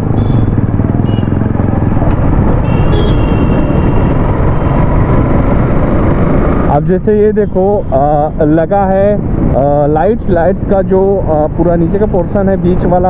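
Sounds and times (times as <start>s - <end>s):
motorcycle engine running: 0.0s - 6.2s
wind and road noise: 0.0s - 13.0s.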